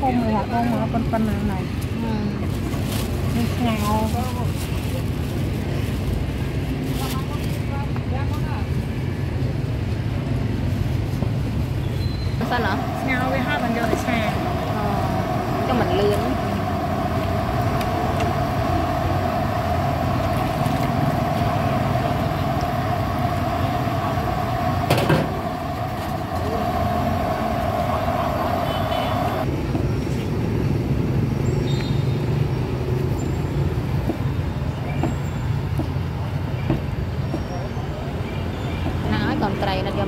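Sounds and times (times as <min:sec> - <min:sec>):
traffic rumbling: 0:00.0 - 0:40.0
steady hum: 0:12.4 - 0:29.5.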